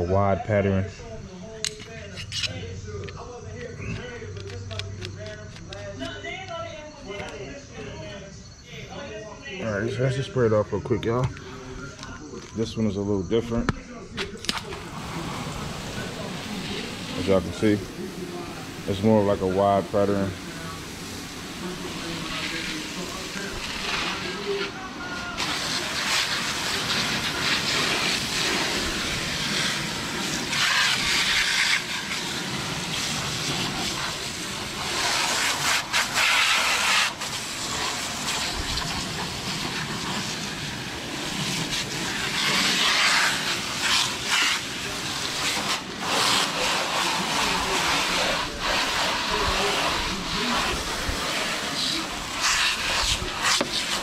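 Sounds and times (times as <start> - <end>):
water spraying from hose: 14.5 - 54.0.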